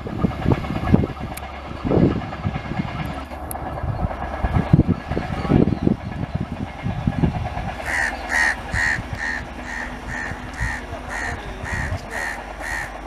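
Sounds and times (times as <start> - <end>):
train rumbling: 0.0 - 13.0
bird's harsh call: 7.8 - 13.0.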